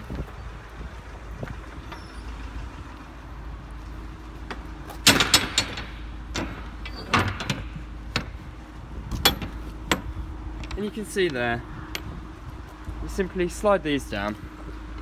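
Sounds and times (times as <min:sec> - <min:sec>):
metal door hardware clanking: 0:04.5 - 0:08.5, 0:09.1 - 0:12.1.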